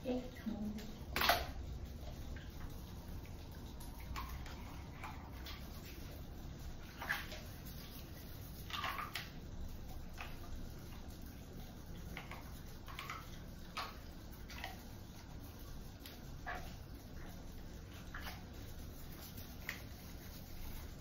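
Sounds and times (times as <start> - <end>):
low steady hum: 0.0 - 21.0
toothbrush scrubbing teeth: 0.0 - 21.0.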